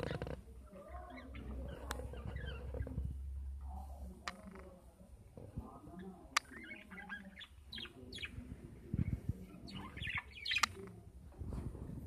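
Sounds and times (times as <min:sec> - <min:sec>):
budgerigars chirping: 0:06.0 - 0:08.5, 0:09.5 - 0:10.9.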